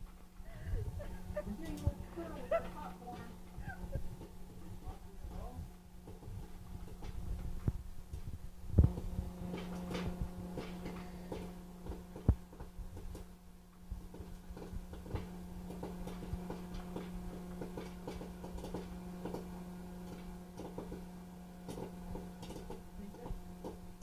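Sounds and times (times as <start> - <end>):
popcorn maker motor hum: 0.0 - 24.0
popcorn kernels popping: 6.0 - 24.0.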